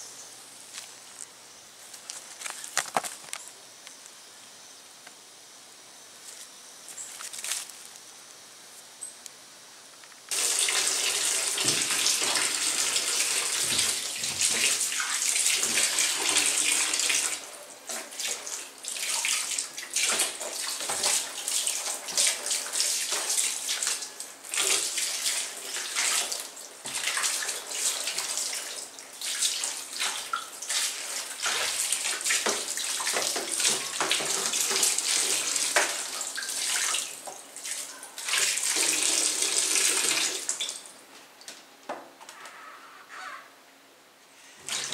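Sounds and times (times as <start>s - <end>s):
tap water running into sink: 10.3s - 28.6s, 29.6s - 37.4s
water splashing on fruit: 10.3s - 40.8s, 44.7s - 44.9s.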